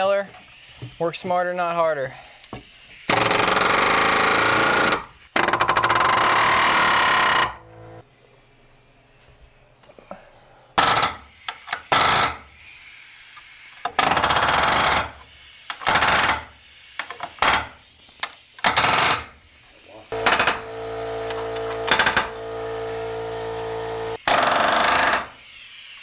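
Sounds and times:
nailer hammering nails into wood: 0:03.1 - 0:07.6, 0:10.8 - 0:12.4, 0:13.8 - 0:17.8, 0:18.6 - 0:19.3, 0:20.2 - 0:22.5, 0:24.2 - 0:25.4.

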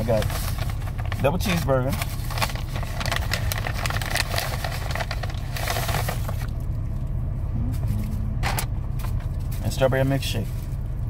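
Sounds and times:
paper bag rustling: 0:00.0 - 0:06.6
low car hum: 0:00.0 - 0:11.0.

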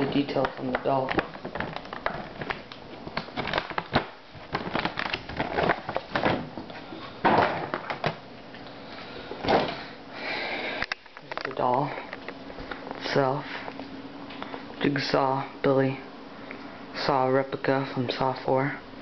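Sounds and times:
plastic packaging crinkling: 0:00.0 - 0:08.2.

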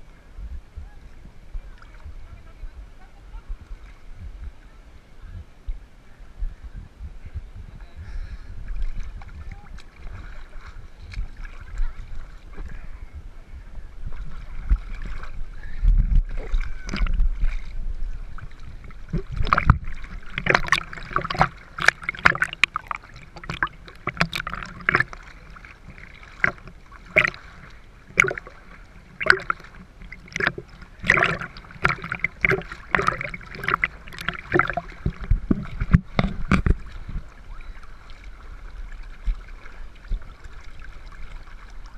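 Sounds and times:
seawater sloshing and splashing: 0:08.6 - 0:13.2, 0:13.9 - 0:41.9
water slaps against camera: 0:19.0 - 0:28.6, 0:29.2 - 0:37.3.

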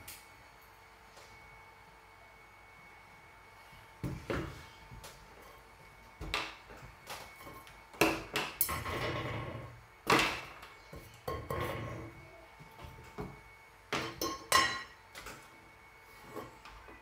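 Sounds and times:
scraping on tabletop: 0:08.6 - 0:09.8, 0:11.3 - 0:12.2.

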